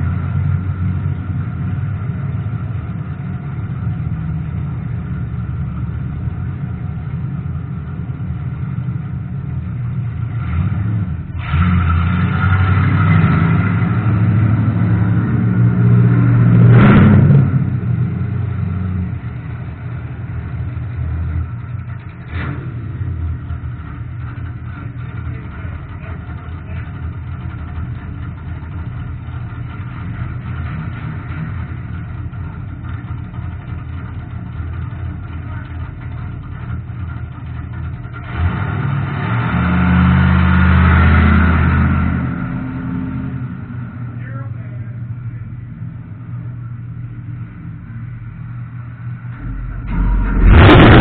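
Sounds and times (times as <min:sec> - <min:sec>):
race car engine running: 0:00.0 - 0:51.0
race cars driving past: 0:44.9 - 0:51.0
brief sharp sound: 0:49.4 - 0:51.0.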